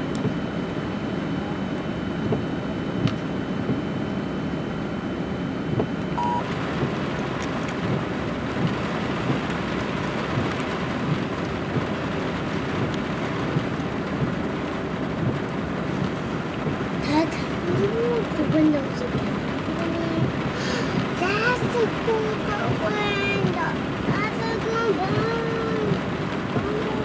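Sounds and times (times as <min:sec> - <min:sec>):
heavy rain falling: 0:06.4 - 0:27.0.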